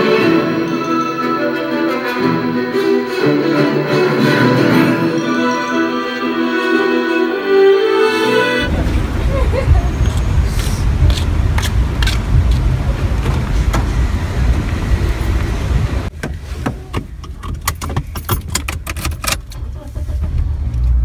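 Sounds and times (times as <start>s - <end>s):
steady low rumble: 8.7s - 16.2s
car keys jingling: 17.2s - 19.5s.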